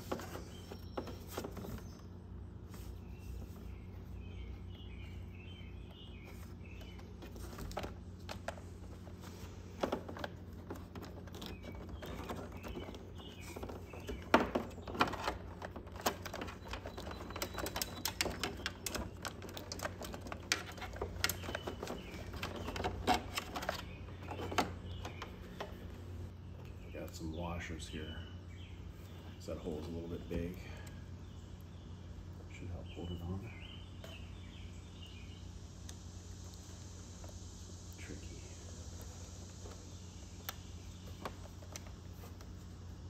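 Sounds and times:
birds chirping faintly: 0.0 - 43.0
steady low hum: 0.0 - 43.0
hands handling plastic parts: 6.2 - 26.8.

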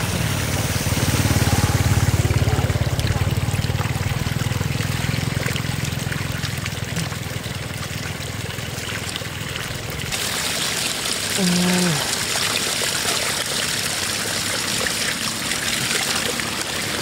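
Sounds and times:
low rumble: 0.0 - 6.7
water running and trickling: 0.0 - 17.0.

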